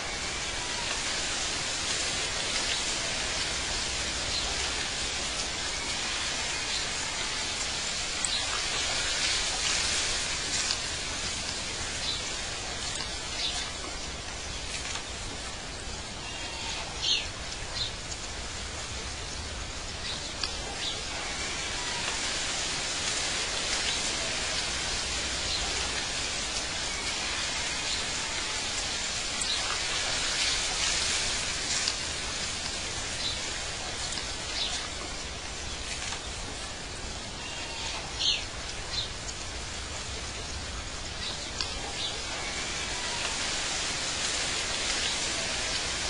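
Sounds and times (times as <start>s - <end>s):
steady hiss: 0.0s - 46.0s.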